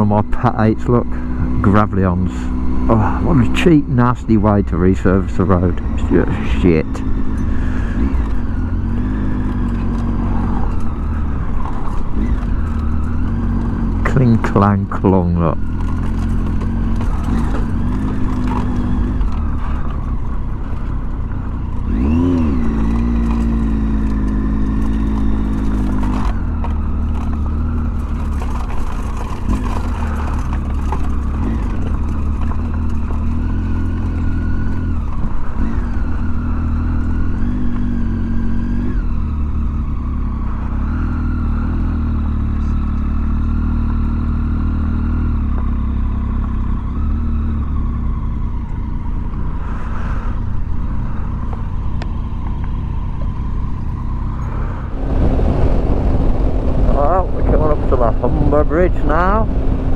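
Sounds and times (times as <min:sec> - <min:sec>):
motorcycle engine running: 0:00.0 - 0:59.9
wind rumble on microphone: 0:49.6 - 0:59.9.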